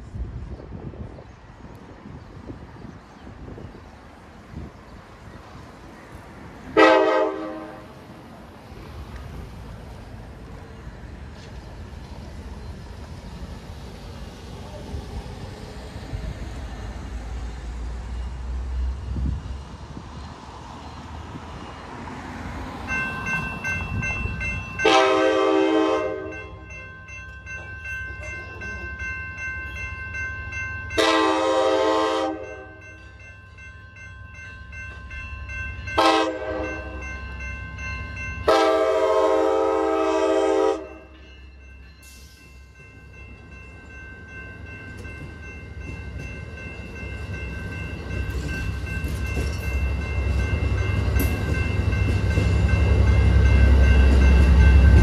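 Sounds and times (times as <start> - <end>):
train rumbling: 0.0 - 55.0
crossing warning bells ringing: 4.5 - 55.0
train horn: 6.8 - 8.0, 24.8 - 26.6, 31.0 - 32.8, 36.0 - 37.0, 38.4 - 41.2.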